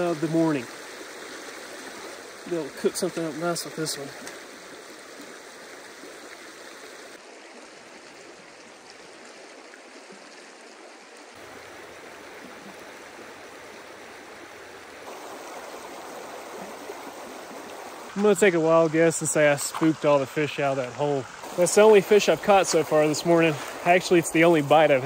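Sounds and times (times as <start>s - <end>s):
river flowing over rocks: 4.4s - 19.5s.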